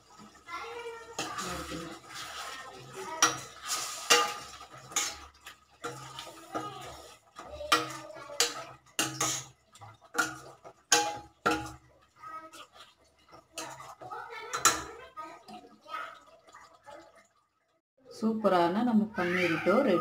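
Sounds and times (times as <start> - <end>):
spoon scraping metal pot: 1.1 - 11.9.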